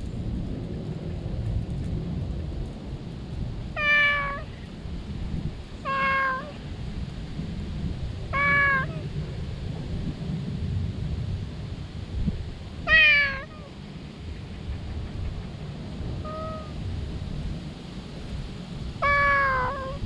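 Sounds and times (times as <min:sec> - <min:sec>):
cat meowing loudly: 0:03.7 - 0:04.6, 0:05.8 - 0:06.6, 0:08.3 - 0:09.1, 0:12.9 - 0:13.7, 0:16.2 - 0:16.8, 0:19.0 - 0:20.0.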